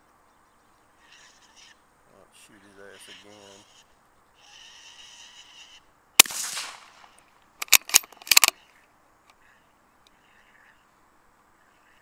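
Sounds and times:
rifle shot with echo: 0:06.2 - 0:08.5
rifle bolt clicks: 0:06.2 - 0:08.6.

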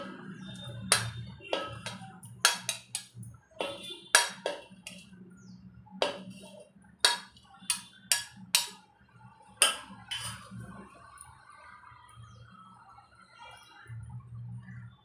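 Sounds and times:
spoon clinking on plate and pot: 0:00.9 - 0:05.1, 0:07.0 - 0:08.8, 0:09.6 - 0:10.4.

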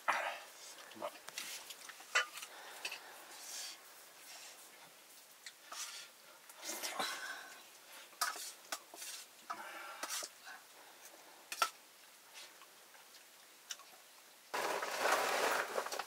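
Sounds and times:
loud rustling: 0:14.5 - 0:16.0.

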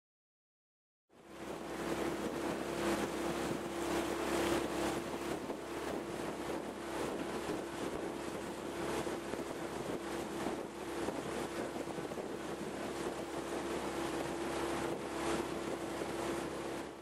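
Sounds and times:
outboard motor humming: 0:01.2 - 0:17.0
wind buffeting microphone: 0:01.4 - 0:17.0.

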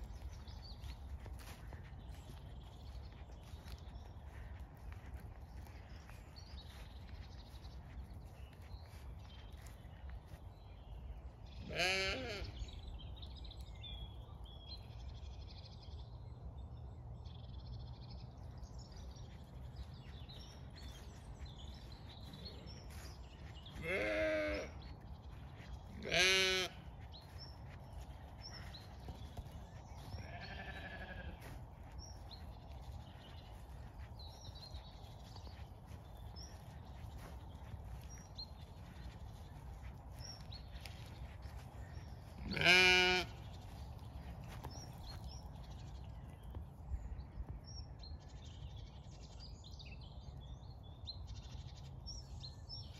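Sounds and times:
sheep bleating: 0:11.6 - 0:12.6, 0:23.7 - 0:24.8, 0:26.0 - 0:26.9, 0:30.2 - 0:31.5, 0:42.4 - 0:43.4.

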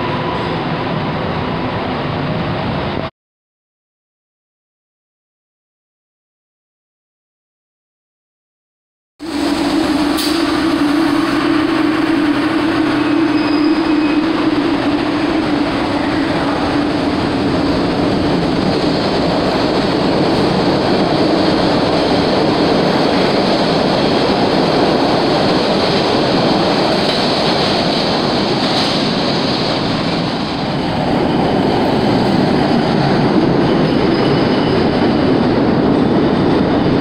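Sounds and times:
subway train hum: 0:00.0 - 0:03.1, 0:09.2 - 0:37.0
steel wheels clattering on rail: 0:09.6 - 0:37.0.

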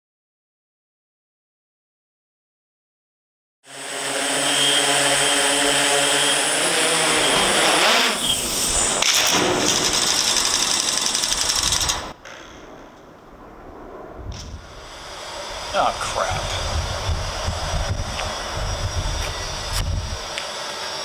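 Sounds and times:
drone motors buzzing: 0:03.7 - 0:12.4, 0:14.5 - 0:21.0.

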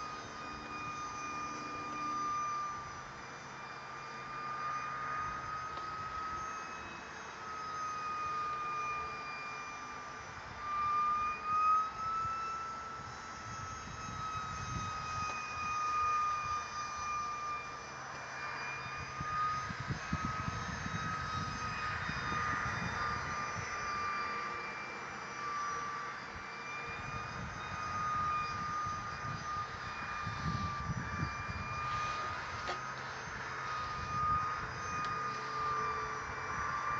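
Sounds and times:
rc jet fan whining: 0:00.0 - 0:36.9
wind rumbling on microphone: 0:10.2 - 0:17.2, 0:18.2 - 0:36.9.

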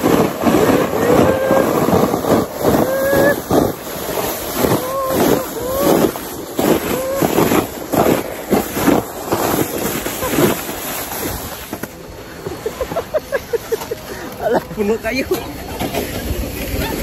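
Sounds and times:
wind buffeting microphone: 0:00.0 - 0:12.2
sled scraping over snow: 0:00.0 - 0:17.0.

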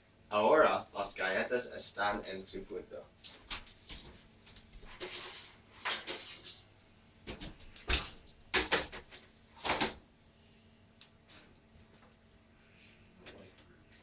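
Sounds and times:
baking sheet scraping: 0:04.8 - 0:06.7.

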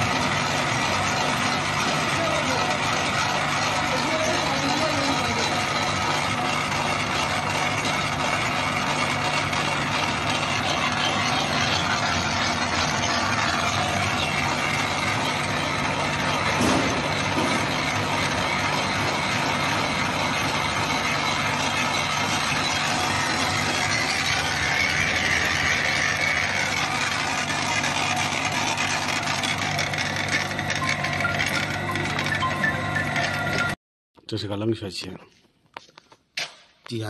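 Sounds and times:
pellet mill grinding: 0:00.0 - 0:33.8.

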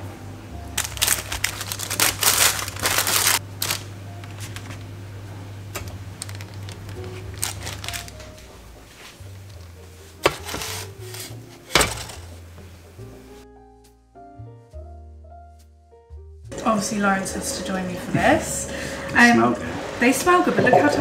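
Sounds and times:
background music: 0:00.0 - 0:21.0
baking paper crinkling: 0:00.8 - 0:04.9, 0:06.1 - 0:12.5.

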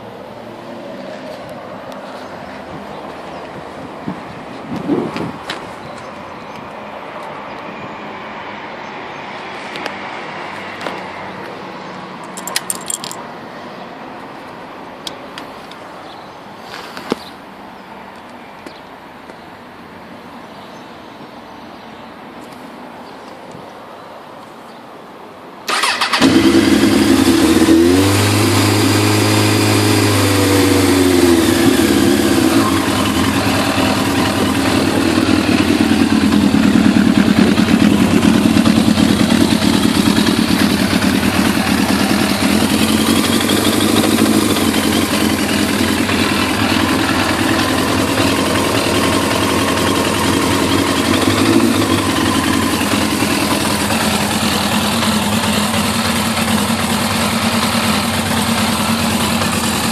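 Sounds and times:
motorcycle engine idling: 0:25.7 - 0:59.9
motorcycle engine starting: 0:25.7 - 0:59.9.

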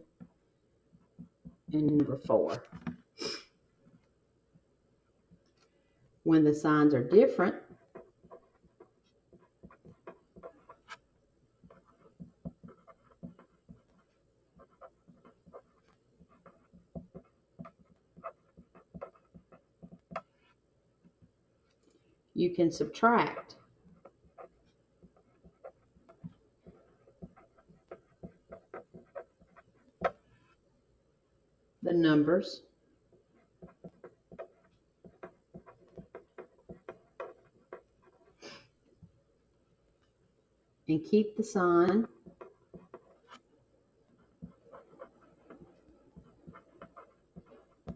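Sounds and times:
pen scratching on paper: 0:07.1 - 0:11.0, 0:11.6 - 0:20.6, 0:22.8 - 0:30.6, 0:33.1 - 0:38.6, 0:41.8 - 0:43.4, 0:44.1 - 0:47.9.

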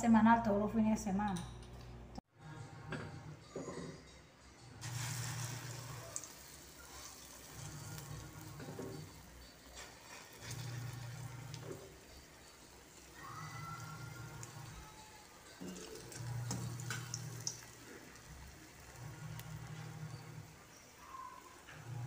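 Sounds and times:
hot oil sizzling: 0:04.8 - 0:22.0.

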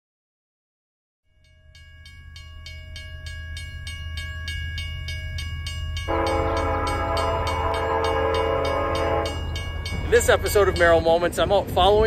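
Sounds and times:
railroad crossing bell ringing: 0:01.3 - 0:12.0
locomotive air horn: 0:06.1 - 0:09.6.

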